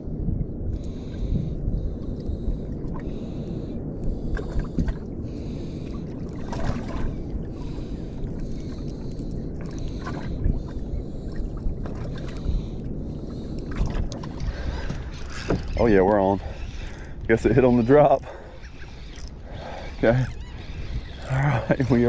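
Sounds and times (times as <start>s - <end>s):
wind buffeting microphone: 0.0s - 22.0s
water splashing against boat hull: 6.3s - 7.2s, 13.7s - 16.3s.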